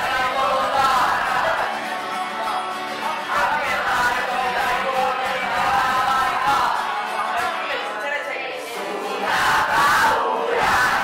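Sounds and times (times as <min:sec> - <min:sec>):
group singing in unison: 0:00.0 - 0:11.0.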